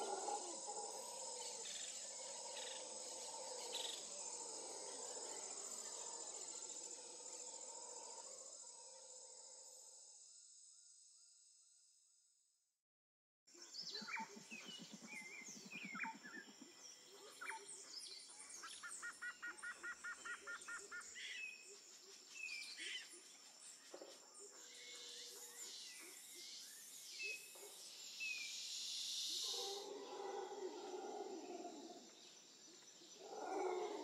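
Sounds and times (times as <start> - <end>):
birds calling and chirping: 13.6 - 21.6.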